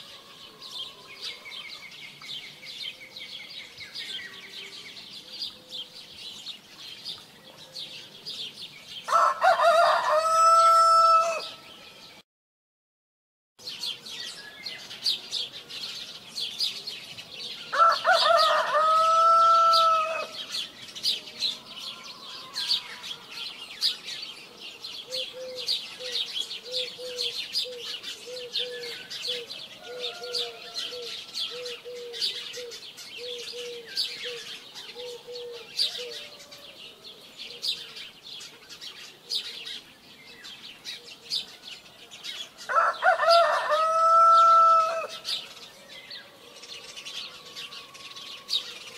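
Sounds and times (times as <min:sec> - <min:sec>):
small birds chirping: 0:00.0 - 0:10.0, 0:13.6 - 0:48.9
rooster crowing: 0:09.1 - 0:11.7, 0:17.7 - 0:20.4, 0:21.7 - 0:23.6, 0:29.7 - 0:31.8, 0:42.6 - 0:45.2.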